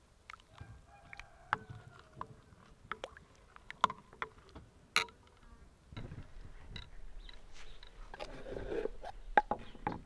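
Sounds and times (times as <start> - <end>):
bowl handling: 6.8 - 9.8.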